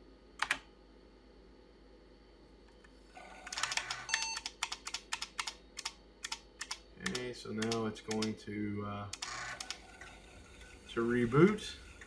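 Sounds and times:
keyboard keypress: 0:03.6 - 0:08.3
high computer beep: 0:04.0 - 0:04.5
fast sharp clicks: 0:04.4 - 0:08.4.

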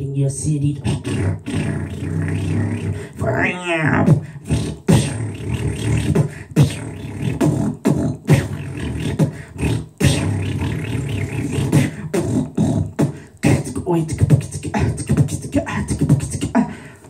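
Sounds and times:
beatboxing bass buzz: 0:00.0 - 0:17.0
beatboxed kick drum thumps: 0:00.7 - 0:17.0
beatboxed snare clicks: 0:04.0 - 0:16.7.

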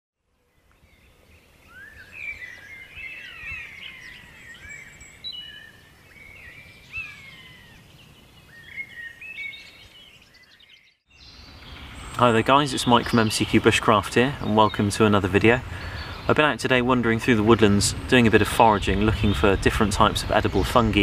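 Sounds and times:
songbirds singing: 0:00.2 - 0:21.0.

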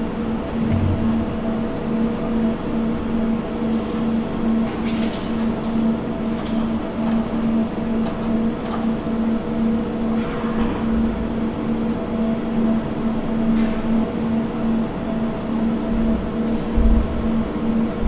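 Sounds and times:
machine hum: 0:00.0 - 0:13.4
constant low rumble: 0:00.5 - 0:02.4.

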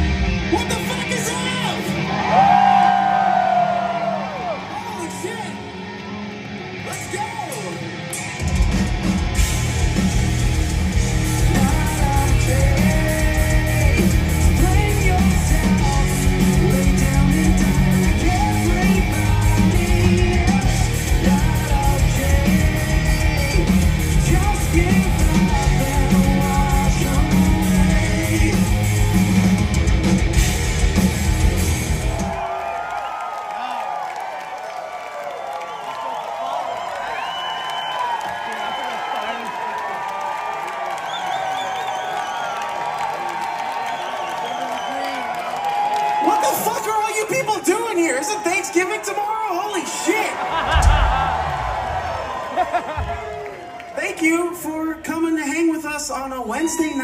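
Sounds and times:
bass guitar: 0:00.0 - 0:00.9, 0:05.8 - 0:32.4
drums: 0:00.0 - 0:33.2, 0:41.0 - 0:57.0
distorted electric guitar: 0:05.5 - 0:32.4
male lead vocal: 0:11.3 - 0:29.1.

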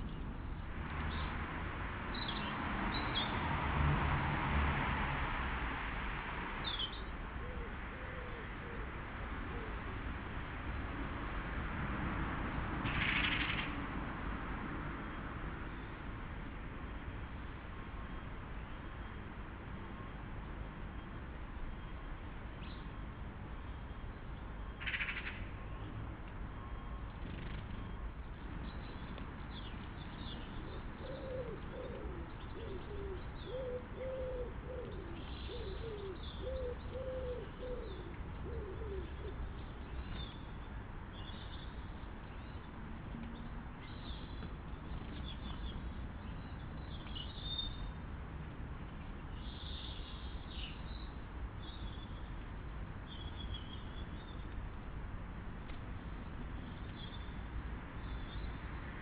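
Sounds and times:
small birds chirping: 0:27.0 - 0:48.0
pigeon cooing: 0:31.0 - 0:39.4.

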